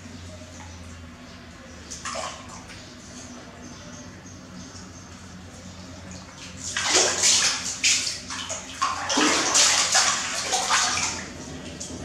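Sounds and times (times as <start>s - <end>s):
water splashing in metal basin: 6.3s - 11.9s.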